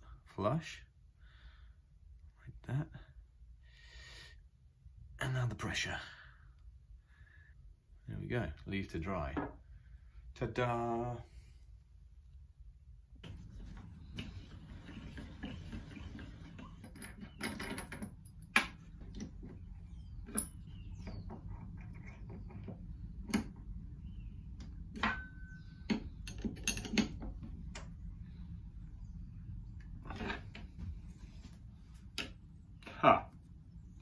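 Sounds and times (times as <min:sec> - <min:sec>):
low steady hum: 0:00.0 - 0:34.0
metal tools clinking: 0:15.3 - 0:18.8, 0:20.2 - 0:20.8, 0:25.0 - 0:27.2.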